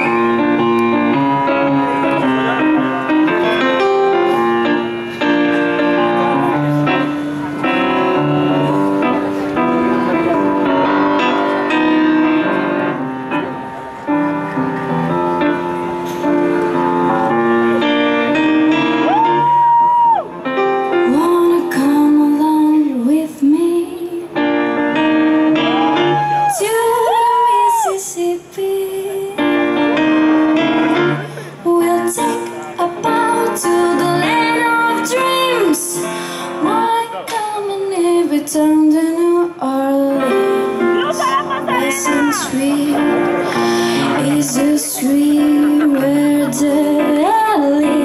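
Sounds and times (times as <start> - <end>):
slow blues piano: 0.0 - 48.0
woman singing blues: 21.0 - 24.4, 26.5 - 29.8, 31.6 - 48.0.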